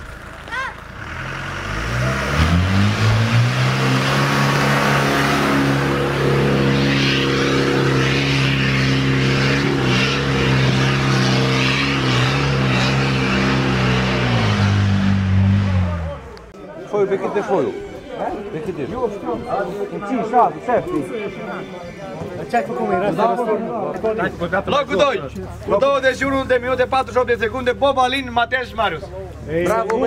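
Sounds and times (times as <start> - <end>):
off-road vehicle engine revving: 0.0 - 16.6.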